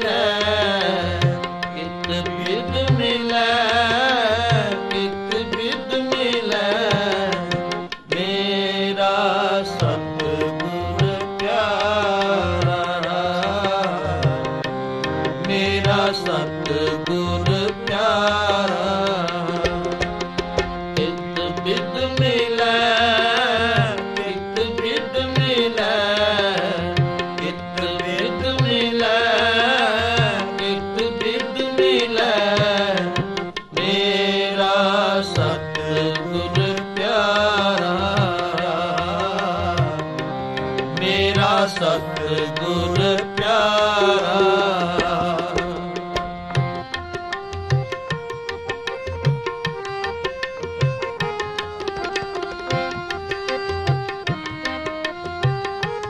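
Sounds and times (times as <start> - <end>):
men singing a hymn: 0.0 - 14.7, 15.4 - 20.0, 21.0 - 46.2
harmonium drones: 0.0 - 56.0.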